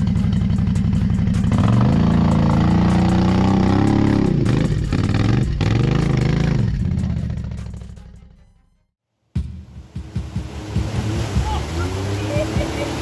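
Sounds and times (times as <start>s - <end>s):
quad engine revving under load: 1.3s - 7.5s, 10.0s - 13.0s.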